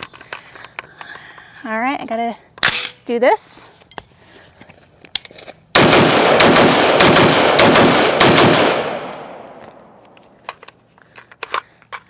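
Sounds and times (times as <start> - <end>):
rapid rifle gunfire: 5.8 - 9.3.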